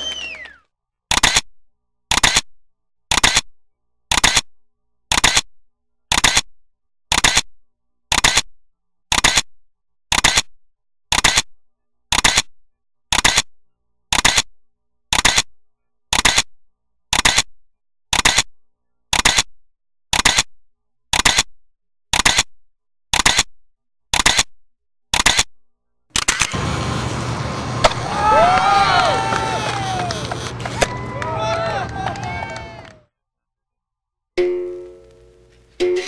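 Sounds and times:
camera shutter clicks: 1.1 - 1.4, 2.1 - 2.5, 3.1 - 3.5, 4.1 - 4.5, 5.1 - 5.4, 6.1 - 6.5, 7.1 - 7.5, 8.1 - 8.4, 9.1 - 9.5, 10.1 - 10.5, 11.1 - 11.5, 12.1 - 12.5, 13.1 - 13.5, 14.1 - 14.4, 15.1 - 15.5, 17.2 - 17.5, 18.2 - 18.5, 19.2 - 19.5, 20.2 - 20.5, 21.2 - 21.5, 22.2 - 22.5, 23.2 - 23.5, 24.2 - 24.5, 25.2 - 25.5, 26.1 - 26.6.

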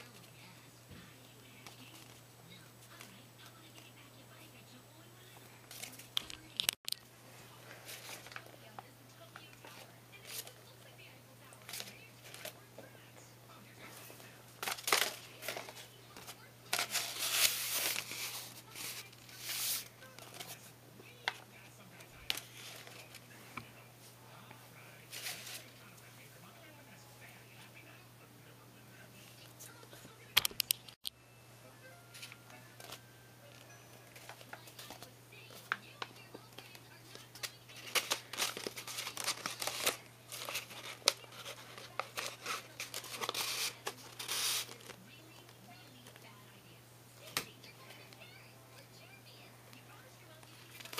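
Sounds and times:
faint electrical hum: 0.0 - 50.9
paper rustling: 7.6 - 8.8, 9.4 - 10.7, 11.6 - 12.6, 13.8 - 21.4, 22.0 - 23.4, 25.1 - 25.8, 33.6 - 45.0, 50.5 - 50.9.

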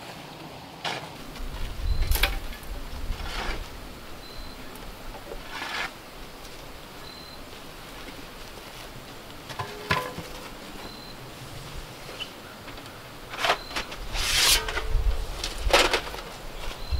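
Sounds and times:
shovel dropped with metallic clank: 9.6 - 10.4
shovel tossing dirt: 13.3 - 16.4.

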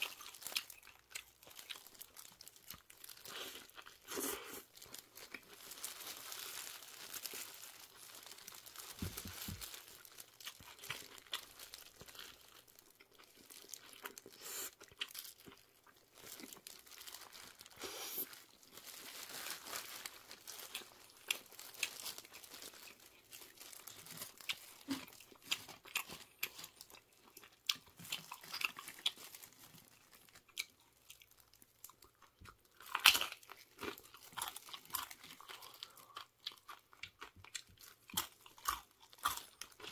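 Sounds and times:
paper wrapper crinkling: 0.0 - 27.0, 28.0 - 31.6
person chewing and crunching food: 0.0 - 39.9.

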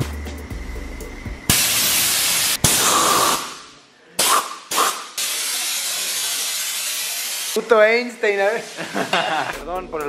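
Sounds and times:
compressed air blow gun blasting: 1.5 - 7.6.

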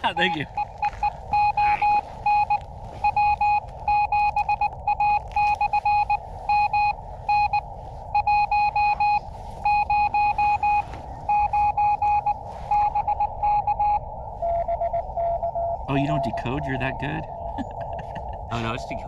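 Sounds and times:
morse code tone: 0.0 - 17.0
receiver hiss: 0.0 - 17.2.

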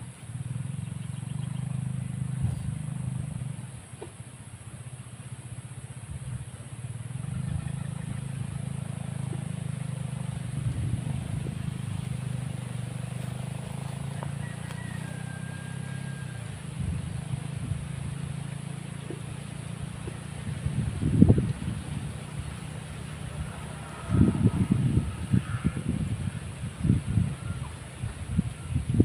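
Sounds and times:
vehicle engines rumbling: 0.0 - 29.0.

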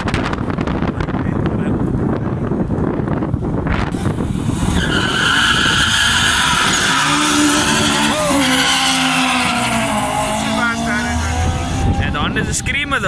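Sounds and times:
car engines at full throttle: 0.0 - 13.0
tyres squealing: 4.7 - 11.3.

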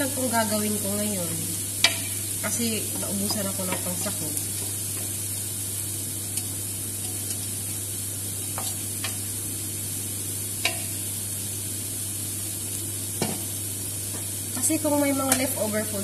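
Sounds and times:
cauliflower sizzling in a frying pan: 0.0 - 16.0
steady low hum: 0.0 - 16.0
utensils knocking on a pan: 1.8 - 2.2, 2.9 - 5.2, 10.6 - 10.9, 13.2 - 13.5.

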